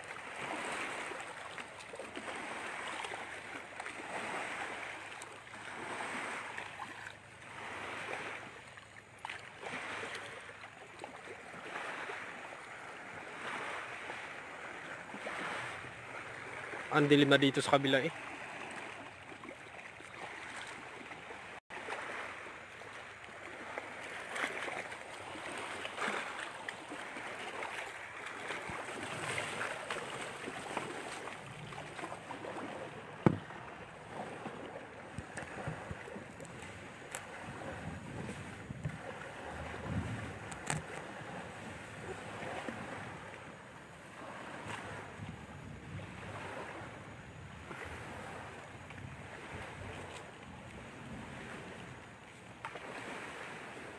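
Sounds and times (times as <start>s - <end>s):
wind buffeting microphone: 30.6s - 43.3s, 44.3s - 47.0s.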